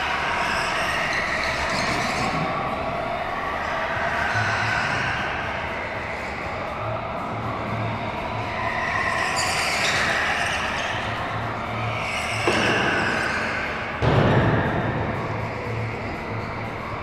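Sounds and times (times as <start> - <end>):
go-kart engines whining: 0.0 - 14.1
loud bang: 14.0 - 15.6.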